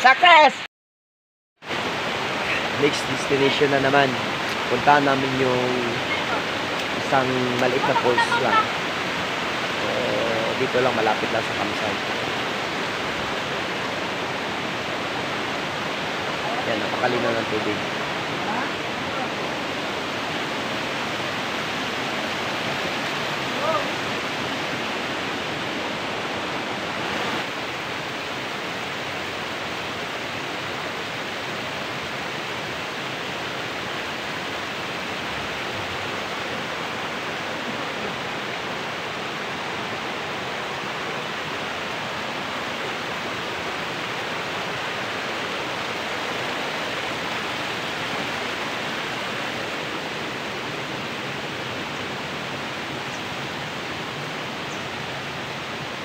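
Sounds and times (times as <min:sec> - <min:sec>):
waterfall and stream rushing: 0:00.0 - 0:00.7, 0:01.6 - 0:56.0.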